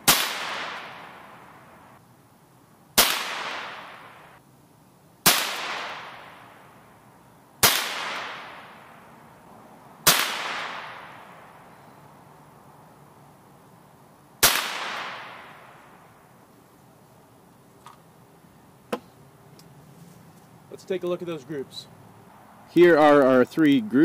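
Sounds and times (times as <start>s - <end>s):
gunshot echo: 0.0s - 1.2s, 3.0s - 4.3s, 5.2s - 6.5s, 7.6s - 8.9s, 10.0s - 11.3s, 14.4s - 15.7s
rifle shots: 0.0s - 1.2s, 3.0s - 4.3s, 5.2s - 6.5s, 7.6s - 8.9s, 10.0s - 11.3s, 14.4s - 15.8s.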